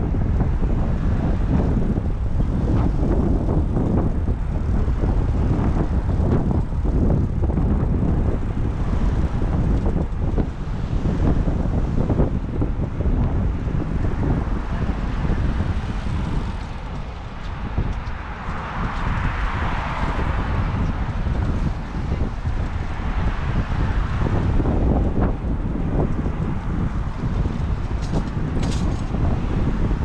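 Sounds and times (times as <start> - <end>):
car traffic: 0.0 - 30.0
wind rumbling on microphone: 0.0 - 30.0.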